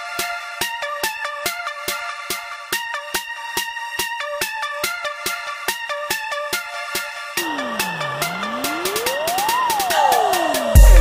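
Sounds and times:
held synth notes: 7.4s - 11.0s.

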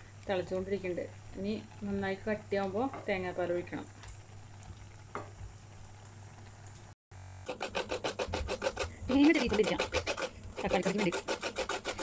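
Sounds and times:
coconut grating rasps: 7.4s - 12.0s.

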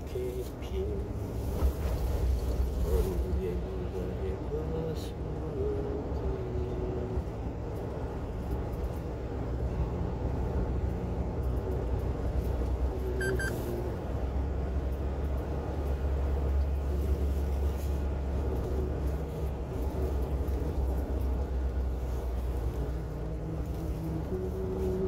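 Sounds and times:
truck engine and tyre rumble: 0.0s - 25.0s
high double tone: 13.2s - 13.7s.

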